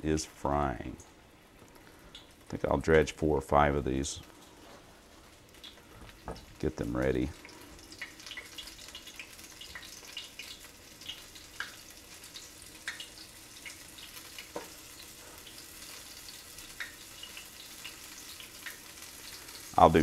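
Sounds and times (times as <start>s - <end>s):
fish frying in hot oil: 4.2s - 20.0s.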